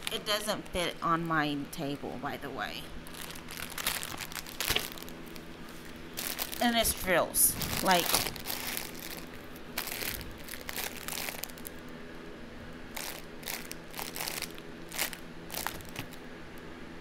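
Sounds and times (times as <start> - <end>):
plastic bag crinkling: 3.0 - 11.9, 12.9 - 16.2.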